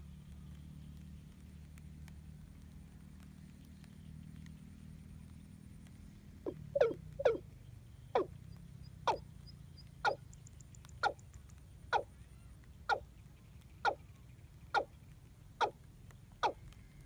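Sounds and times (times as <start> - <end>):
bird calling: 6.4 - 7.4, 8.1 - 8.4, 9.0 - 9.3, 10.0 - 17.0.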